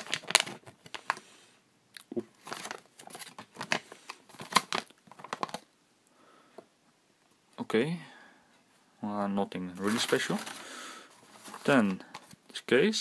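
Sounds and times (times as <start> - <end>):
paper rustling and crinkling: 0.0 - 1.3, 2.4 - 5.7, 9.8 - 12.4.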